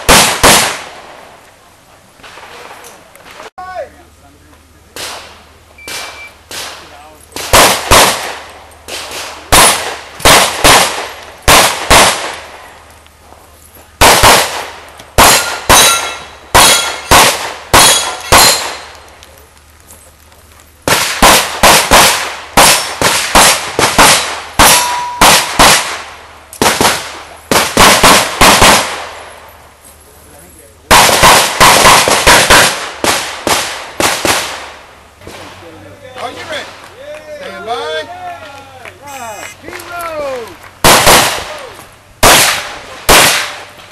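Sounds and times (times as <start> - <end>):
pistol shots: 0.0 - 1.3, 5.0 - 12.7, 14.0 - 19.0, 20.8 - 29.3, 30.9 - 35.5, 40.8 - 41.6, 42.2 - 43.9.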